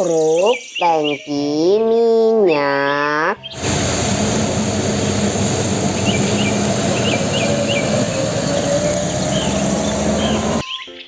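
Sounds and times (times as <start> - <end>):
small birds chirping: 0.0 - 3.8, 4.7 - 11.0
diesel truck engine running: 3.5 - 10.6
whine rising in pitch: 3.5 - 10.6
tyre noise on wet road: 3.6 - 10.6.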